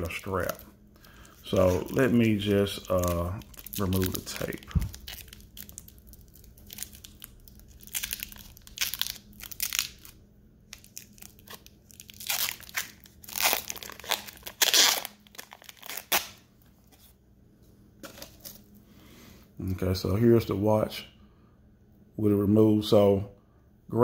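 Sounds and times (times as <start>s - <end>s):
plastic wrap crinkling: 0.0s - 17.1s.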